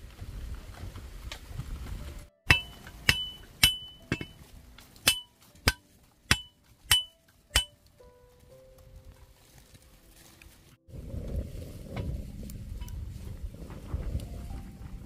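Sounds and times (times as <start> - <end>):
hammer strikes ringing: 2.5 - 4.4, 5.0 - 7.8
low rumble: 10.9 - 15.0.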